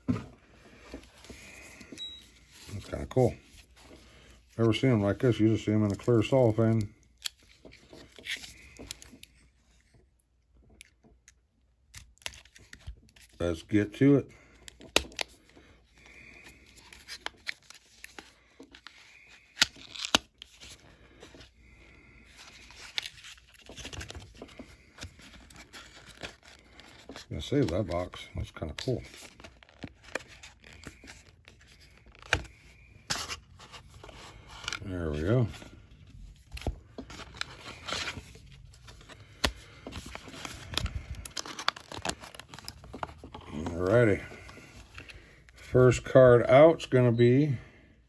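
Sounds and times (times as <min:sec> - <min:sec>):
cardboard tearing and crinkling: 0:19.4 - 0:20.7, 0:22.4 - 0:27.9, 0:29.1 - 0:32.5, 0:36.5 - 0:44.0.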